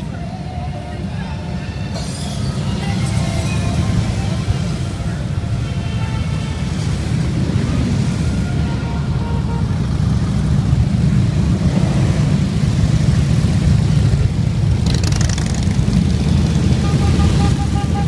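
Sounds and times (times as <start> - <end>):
motorcycles riding past: 9.8 - 18.0.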